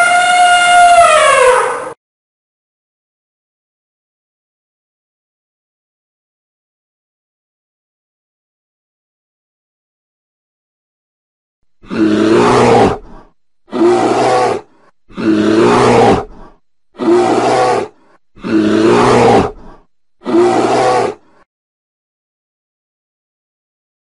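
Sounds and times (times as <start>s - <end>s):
bear roaring: 11.8s - 21.4s.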